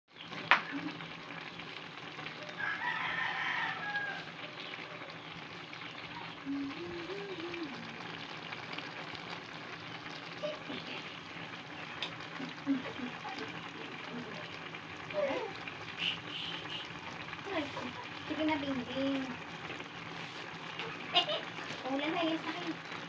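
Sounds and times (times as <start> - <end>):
vegetables sizzling in a wok: 0.1 - 23.0
rooster crowing: 2.4 - 5.1.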